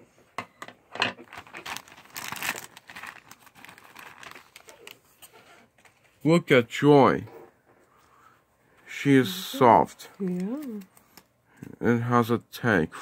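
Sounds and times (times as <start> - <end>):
plastic bag crinkling: 1.2 - 5.3.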